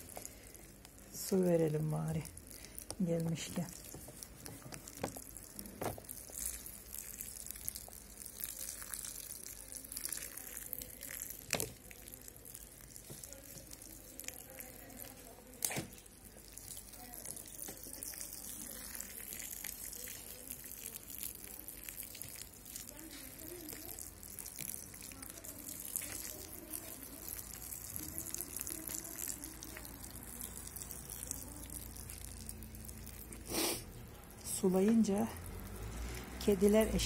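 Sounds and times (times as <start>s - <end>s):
water jets pattering on soil: 1.1s - 11.1s, 34.5s - 37.0s.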